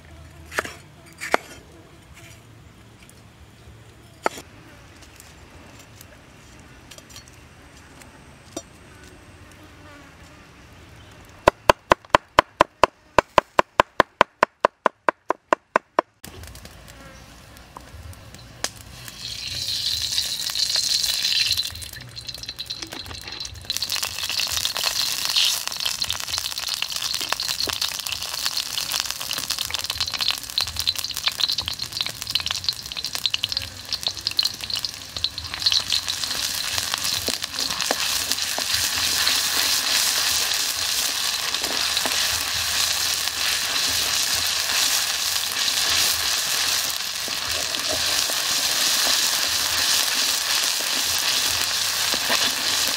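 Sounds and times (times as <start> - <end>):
food frying with crackling sizzle: 16.3 - 52.9
oil sizzling in a wok: 18.3 - 52.9.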